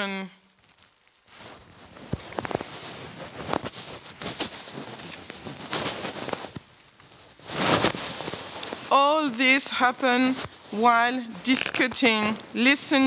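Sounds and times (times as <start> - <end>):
rustling and scraping: 0.6 - 13.0.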